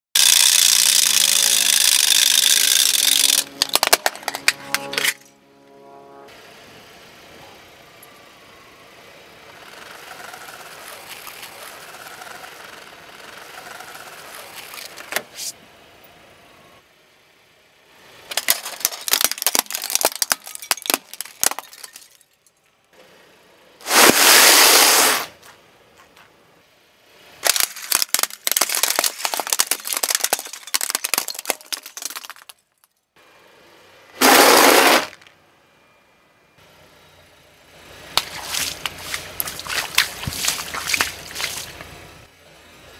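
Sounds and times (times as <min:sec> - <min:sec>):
tyre crunching objects on asphalt: 0:34.2 - 0:35.3.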